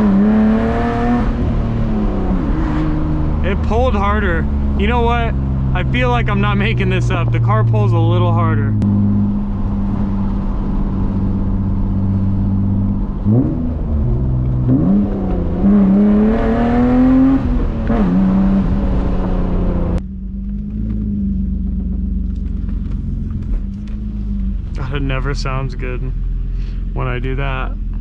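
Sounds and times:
car engine revving from cabin: 0.0 - 6.5, 8.7 - 20.0.

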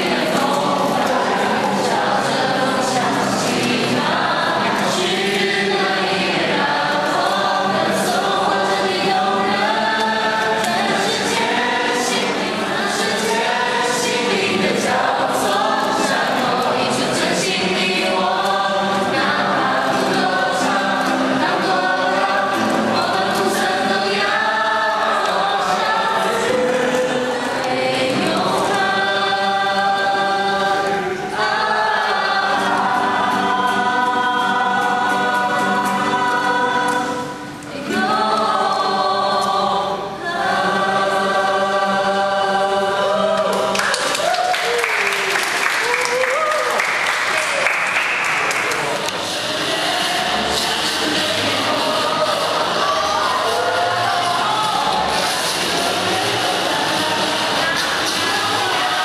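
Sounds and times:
group singing in chorus: 0.0 - 59.0.

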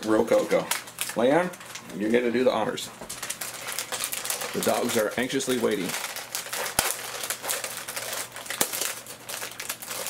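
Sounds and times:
plastic wrapper crinkling and tearing: 0.0 - 2.4, 3.0 - 10.0
sharp wrapper snaps: 3.2 - 10.0.

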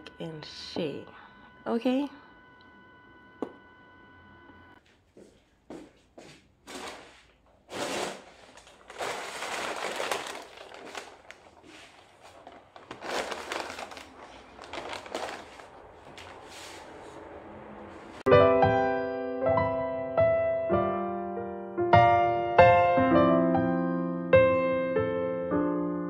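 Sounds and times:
paper bag rustling: 6.6 - 17.0.

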